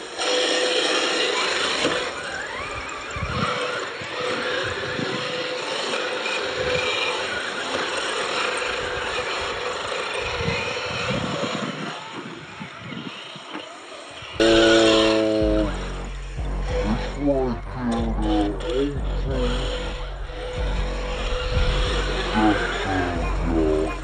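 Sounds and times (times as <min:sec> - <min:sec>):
rc car motors whining: 0:00.0 - 0:24.0
loud music: 0:14.4 - 0:24.0.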